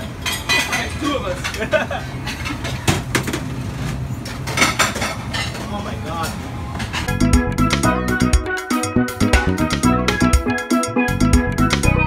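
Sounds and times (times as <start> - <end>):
dishes and utensils clattering: 0.0 - 7.1.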